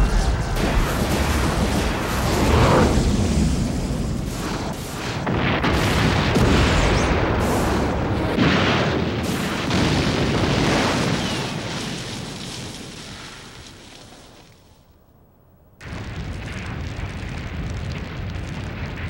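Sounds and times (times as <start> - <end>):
continuous rumble: 0.0 - 5.6
cartoon explosion booms: 0.0 - 12.8, 15.8 - 19.0.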